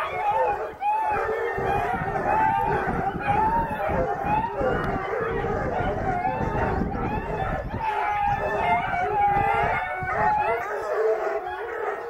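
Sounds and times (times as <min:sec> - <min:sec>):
hound pups howling: 0:00.0 - 0:12.0.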